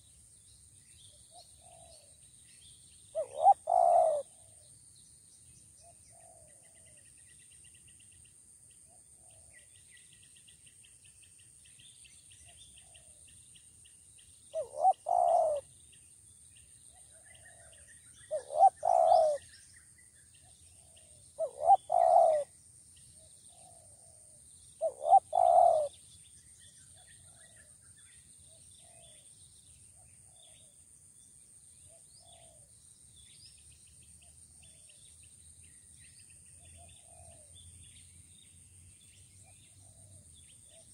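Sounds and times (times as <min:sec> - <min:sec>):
dove cooing: 0:01.6 - 0:02.1, 0:03.2 - 0:04.6, 0:14.6 - 0:15.7, 0:17.4 - 0:19.4, 0:20.8 - 0:22.5, 0:24.8 - 0:25.9, 0:36.8 - 0:37.5.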